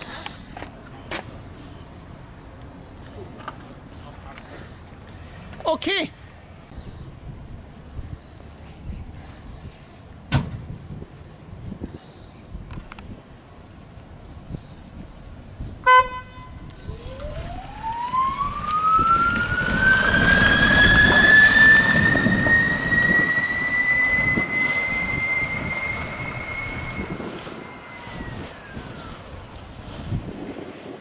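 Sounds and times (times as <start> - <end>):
short horn toot: 15.8 - 16.6.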